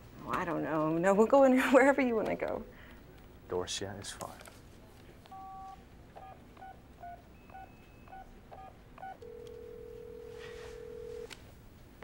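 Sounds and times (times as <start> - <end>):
telephone keypad beeps: 7.4 - 11.2
telephone ringing tone: 7.4 - 11.3.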